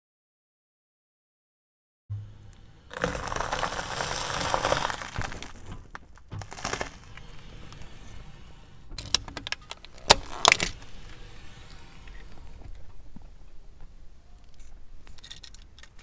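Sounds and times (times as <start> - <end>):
tyre crushing dry toast: 2.9 - 7.2.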